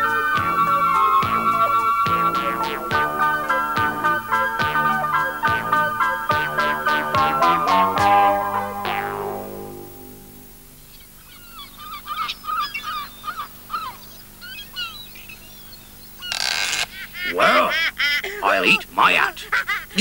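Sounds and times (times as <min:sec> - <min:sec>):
honking calls: 0:00.0 - 0:10.2
music chord: 0:00.0 - 0:10.6
seagulls crying: 0:11.2 - 0:15.1.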